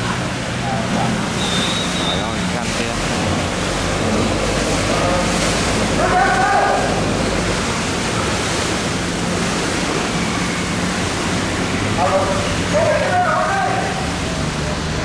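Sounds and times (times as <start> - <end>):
low boat engine hum: 0.0 - 15.0
river water rushing: 0.0 - 15.0
wind: 0.0 - 15.0
faint voices: 4.1 - 8.1.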